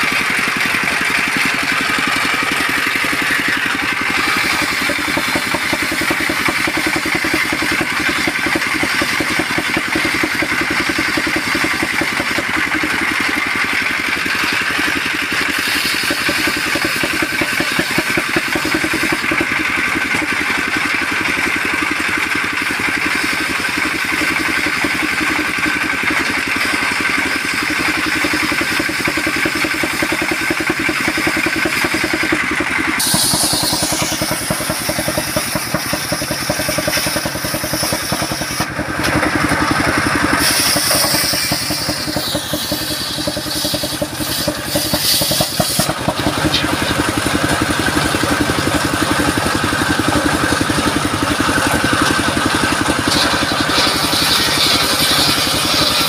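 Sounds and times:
diesel engine running: 0.0 - 56.0
circular saw ripping log: 15.4 - 19.2, 33.0 - 47.4, 50.6 - 56.0.

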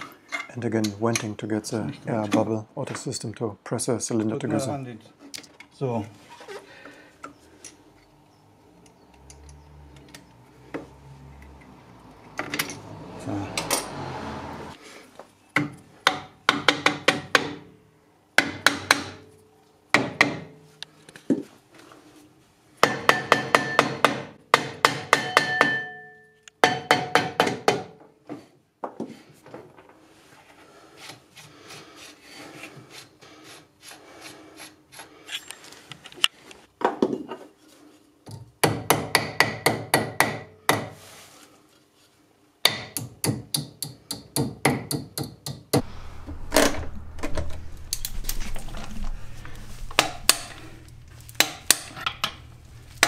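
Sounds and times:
hammer tapping on metal: 22.8 - 27.9.

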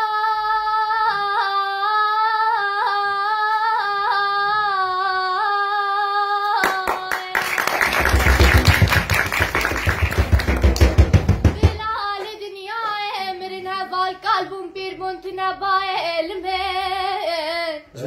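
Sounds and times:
girl singing unaccompanied: 0.0 - 7.3, 11.5 - 18.0
audience clapping: 6.6 - 13.0.

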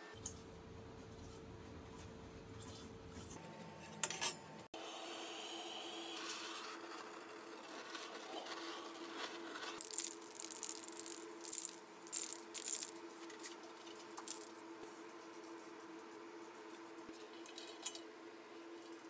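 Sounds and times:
faint steady hum: 0.0 - 19.0
small metal parts clinking: 9.7 - 13.0, 14.2 - 14.6.

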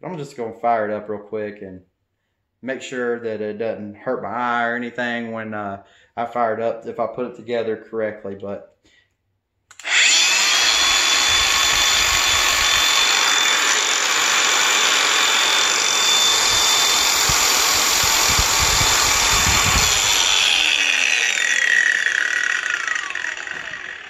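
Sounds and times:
angle grinder whining: 9.7 - 24.0.

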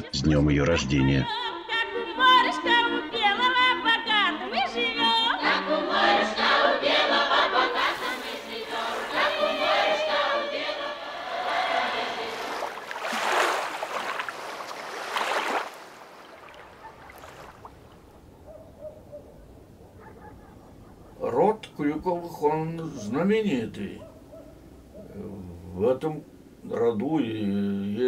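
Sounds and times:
girls singing folk song: 1.3 - 13.0
wave washing over sand: 7.8 - 10.1, 11.4 - 17.7.

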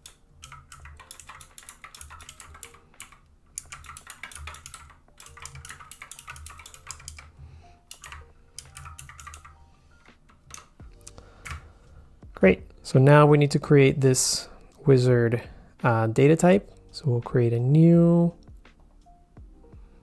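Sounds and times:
typing on computer keyboard: 0.0 - 10.8, 11.4 - 11.6.

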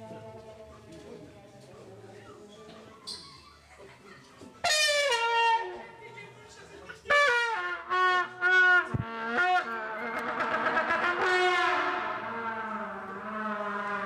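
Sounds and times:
horn-like wind instrument blasts: 7.1 - 14.0.

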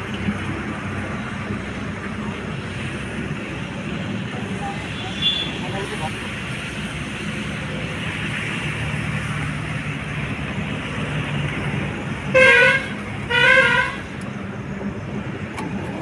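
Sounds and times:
tractor horn honks: 12.3 - 14.1.

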